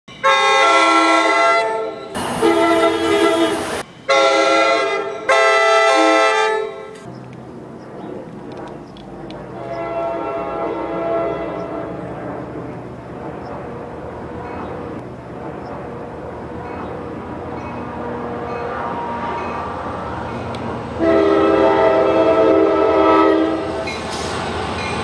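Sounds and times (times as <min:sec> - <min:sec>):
train horn blasts: 0:00.1 - 0:07.0, 0:09.6 - 0:12.1, 0:17.8 - 0:19.9, 0:21.0 - 0:24.0
train running rumble: 0:06.9 - 0:25.0.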